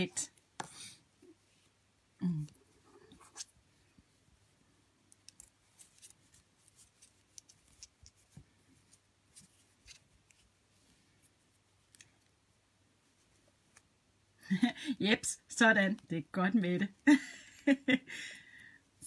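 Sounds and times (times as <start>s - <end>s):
knitting needles clicking: 5.0s - 8.4s, 11.8s - 12.3s.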